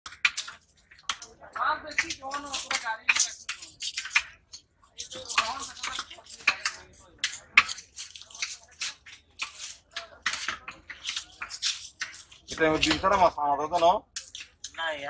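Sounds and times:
knife scraping fish scales: 1.9s - 15.0s.

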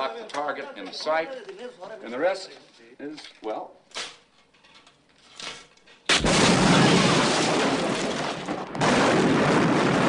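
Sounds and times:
rocket launcher blast: 6.1s - 10.0s.

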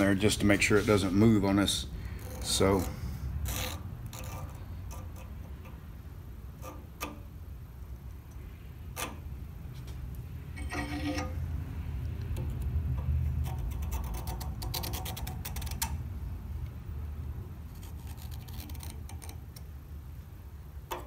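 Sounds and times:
metal scrape: 0.0s - 5.8s, 10.5s - 11.6s
low shop hum: 0.0s - 21.0s.

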